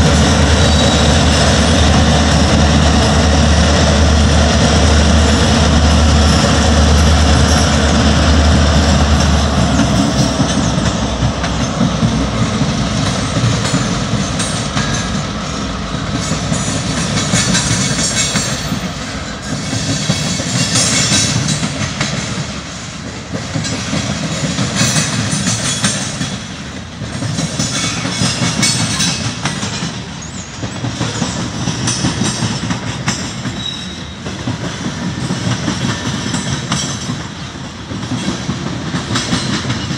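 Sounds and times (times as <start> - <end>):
diesel locomotive rumble: 0.0 - 39.9
train wheels clattering over rails: 0.0 - 39.9
high wheel squeal: 0.5 - 1.6, 33.5 - 34.3.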